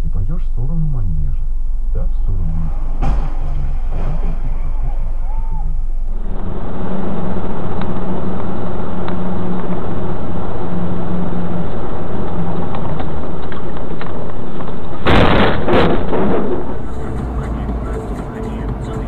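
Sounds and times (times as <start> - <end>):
vehicle engine and road noise: 0.0 - 19.0
loud car crash: 2.6 - 8.8, 15.0 - 19.0.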